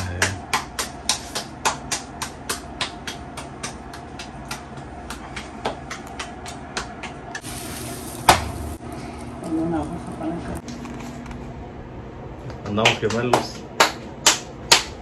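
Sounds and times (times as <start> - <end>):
hands slapping dough: 0.0 - 7.4, 12.7 - 15.0.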